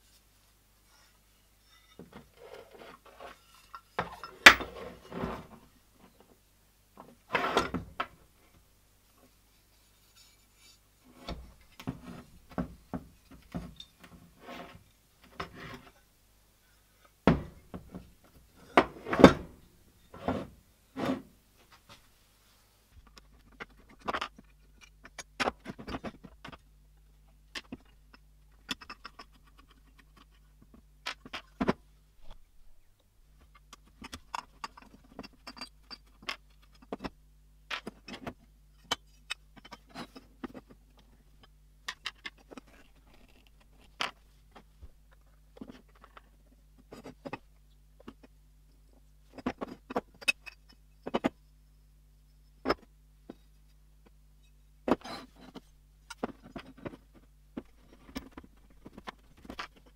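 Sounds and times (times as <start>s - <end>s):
metal parts clinking and scraping: 1.6s - 5.2s.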